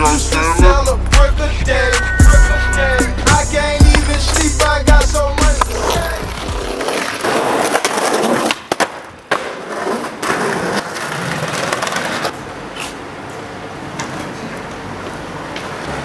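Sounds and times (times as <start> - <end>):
skateboard wheels rolling on concrete: 2.8 - 16.0
skateboard clacks: 5.4 - 13.0.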